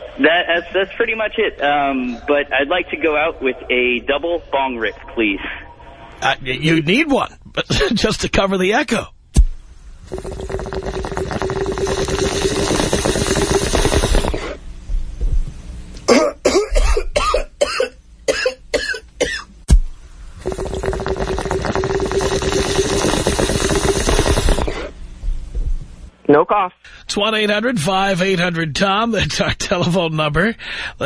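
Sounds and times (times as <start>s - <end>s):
water pipe bubbling: 10.0s - 14.6s, 19.7s - 25.0s
person coughing: 16.0s - 19.5s.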